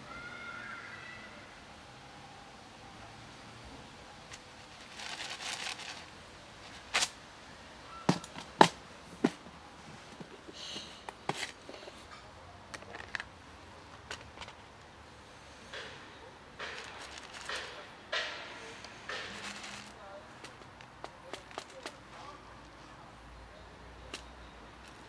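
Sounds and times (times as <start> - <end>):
plastic rustling: 4.2 - 7.2, 16.6 - 22.0.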